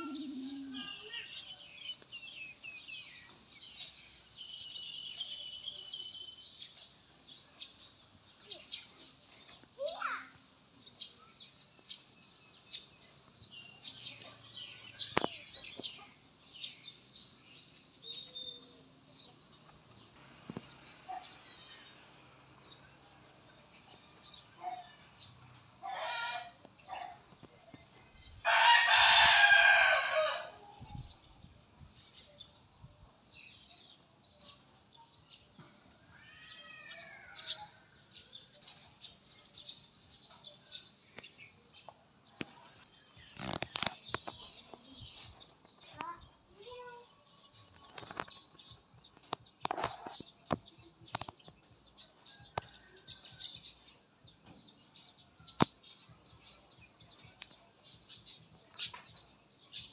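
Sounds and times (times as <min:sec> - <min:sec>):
small birds chirping: 0:00.0 - 0:59.9
rooster crowing: 0:28.4 - 0:30.7.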